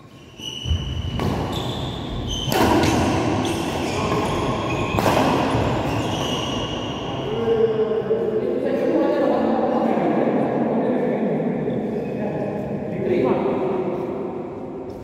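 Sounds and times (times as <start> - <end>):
shoes squeaking on court: 0.0 - 7.1
racket hitting shuttlecock: 0.6 - 1.5, 2.4 - 6.0.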